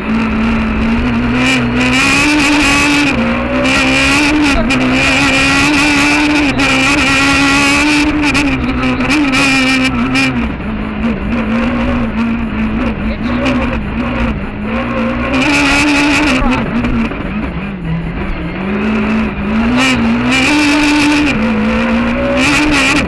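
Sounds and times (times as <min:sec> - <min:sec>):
rally car engine revving: 0:00.0 - 0:23.0.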